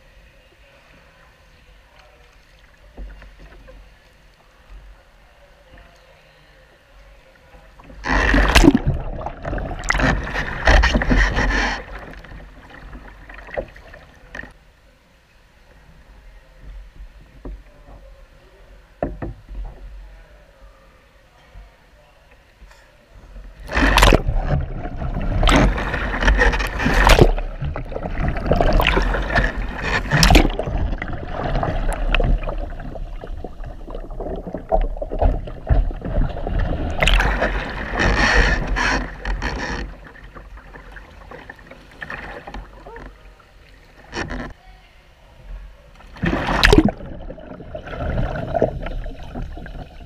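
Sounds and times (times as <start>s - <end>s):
water lapping: 7.4s - 14.6s, 23.4s - 44.6s, 45.8s - 50.0s
water splashing and churning: 7.7s - 14.6s, 23.5s - 44.6s, 45.9s - 50.0s
water bubbling: 7.8s - 14.6s, 23.5s - 44.3s, 46.0s - 50.0s.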